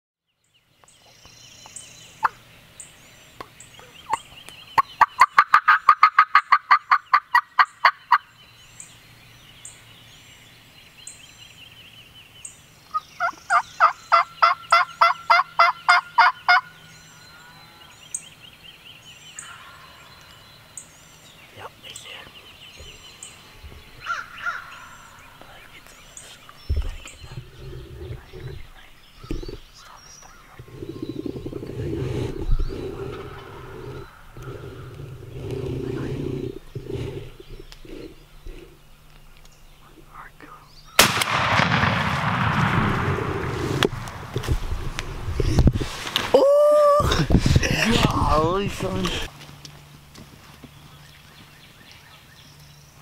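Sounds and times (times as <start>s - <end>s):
small birds chirping: 0.2s - 41.2s, 43.6s - 53.0s
turkey yelping: 5.0s - 8.2s, 12.9s - 16.7s.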